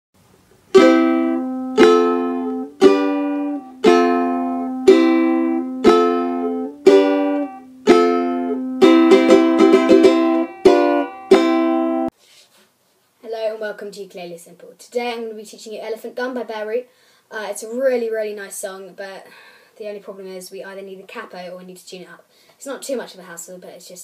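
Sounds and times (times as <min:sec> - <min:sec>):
ukulele strumming chords: 0:00.6 - 0:12.1.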